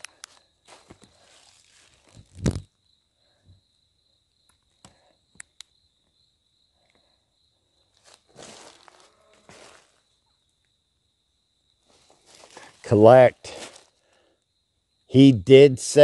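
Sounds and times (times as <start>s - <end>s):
sharp clicks: 0.0s - 0.4s, 4.5s - 5.7s
night insects trilling: 0.0s - 16.0s
rustling footsteps: 0.7s - 2.7s, 8.0s - 10.0s, 11.8s - 14.0s.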